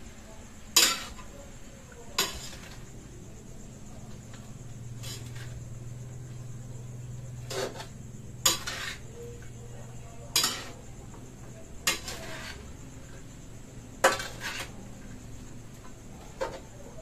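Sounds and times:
utensil scraping a pan: 0.7s - 1.4s, 2.2s - 2.9s, 4.3s - 5.8s, 7.4s - 9.5s, 10.3s - 10.8s, 11.8s - 12.8s, 14.0s - 15.0s.

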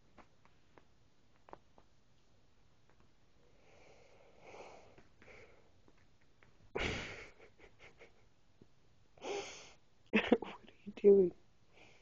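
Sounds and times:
person breathing and sighing: 3.5s - 5.8s, 9.2s - 9.8s.

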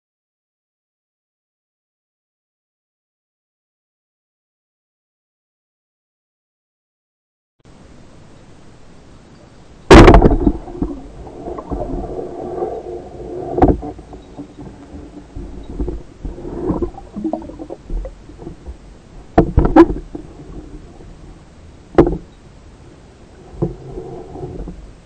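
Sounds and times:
rumbling and scraping: 9.9s - 25.0s
knocks: 22.0s - 22.3s.

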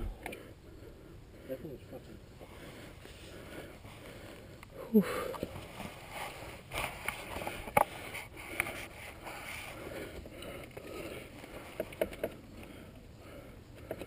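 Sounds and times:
clicks and knocks of dirt bike: 6.7s - 8.8s, 10.0s - 12.8s, 13.7s - 14.0s.

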